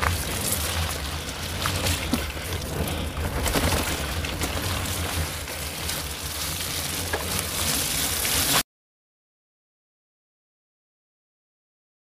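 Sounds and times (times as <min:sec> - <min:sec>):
rushing wind: 0:00.0 - 0:08.6
tyres hissing on wet mud: 0:00.0 - 0:08.6
vehicle engine drone: 0:00.0 - 0:08.6.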